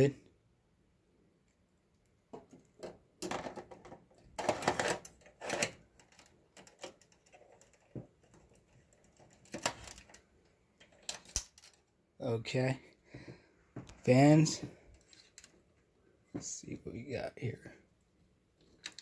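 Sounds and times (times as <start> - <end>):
plastic and metal parts clattering: 2.3 - 12.0, 14.9 - 15.6, 18.6 - 19.0.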